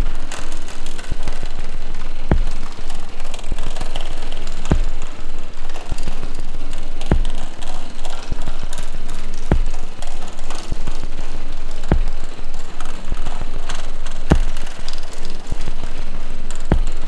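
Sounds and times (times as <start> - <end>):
noisy dense music: 0.0 - 17.0
deep thump: 2.3 - 2.5, 14.3 - 14.5.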